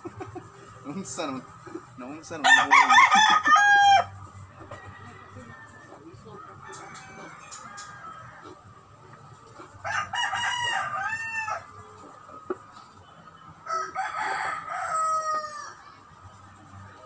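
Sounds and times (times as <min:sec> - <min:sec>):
rooster crowing: 0:02.4 - 0:04.1, 0:09.8 - 0:11.7, 0:13.6 - 0:15.8.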